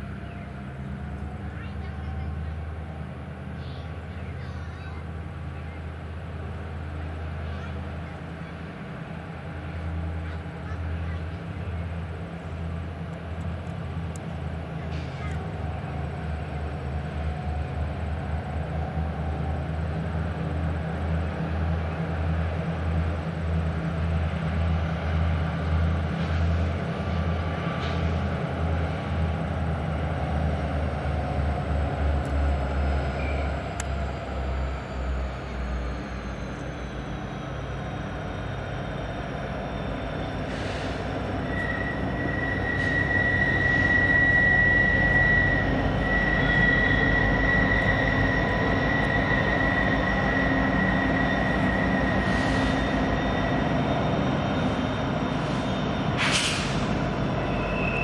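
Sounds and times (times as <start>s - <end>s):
diesel locomotive engine rumble: 0.0s - 58.0s
high-pitched wheel squeal: 32.4s - 58.0s.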